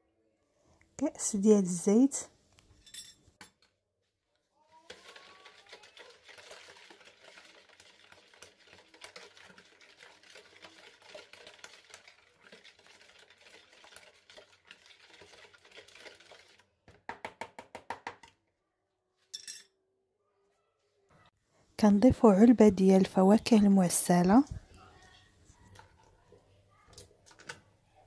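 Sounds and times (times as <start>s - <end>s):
wire whisk beating in plastic bowl: 4.9s - 16.6s.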